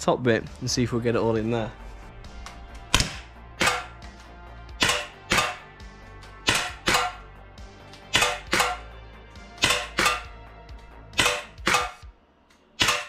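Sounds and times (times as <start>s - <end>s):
air pistol pops: 2.4s - 5.6s, 6.4s - 7.2s, 7.9s - 8.8s, 9.6s - 10.3s, 11.2s - 12.1s, 12.8s - 13.0s.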